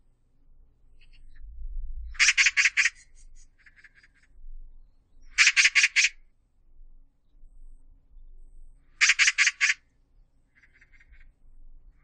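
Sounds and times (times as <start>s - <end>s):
magpie chattering calls: 2.2s - 4.2s, 5.3s - 6.2s, 9.0s - 9.8s, 10.6s - 11.3s.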